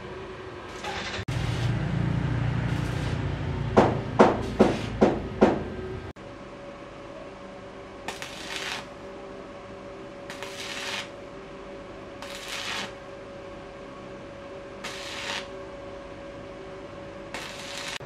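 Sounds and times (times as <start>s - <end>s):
welding arc crackling: 0.7s - 5.0s, 8.1s - 9.0s, 10.3s - 11.2s, 12.2s - 13.0s, 14.8s - 15.5s, 17.3s - 18.0s.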